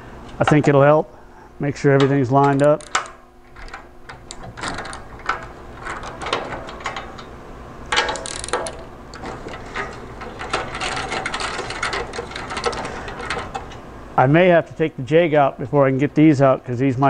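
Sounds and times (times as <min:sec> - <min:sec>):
metal clatter: 0:02.0 - 0:13.8
hand ratchet clicking: 0:02.5 - 0:07.3, 0:07.9 - 0:13.8.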